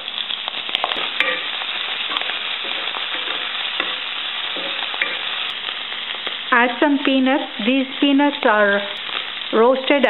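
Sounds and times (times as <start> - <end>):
oil sizzling in a pan: 0.0 - 10.0
wooden spatula stirring: 0.7 - 6.5.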